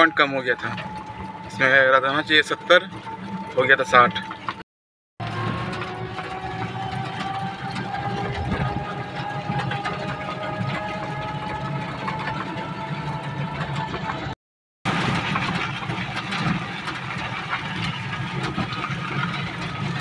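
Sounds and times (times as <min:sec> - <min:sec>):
low vehicle rumble: 0:00.0 - 0:04.6, 0:05.2 - 0:20.0
electric motor whining: 0:05.2 - 0:14.3.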